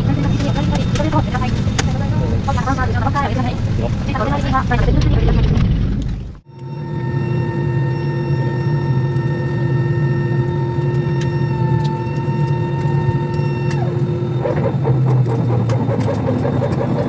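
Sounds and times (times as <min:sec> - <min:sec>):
aircraft cabin hum with tones: 0:00.0 - 0:17.0
fast pulsing sound: 0:06.5 - 0:17.0.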